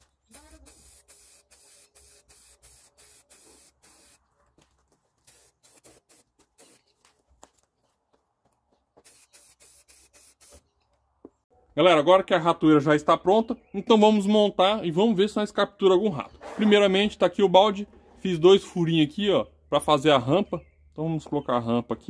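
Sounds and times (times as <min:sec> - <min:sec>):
spray-paint can hissing: 0:00.3 - 0:04.2, 0:05.2 - 0:06.9, 0:09.0 - 0:10.6.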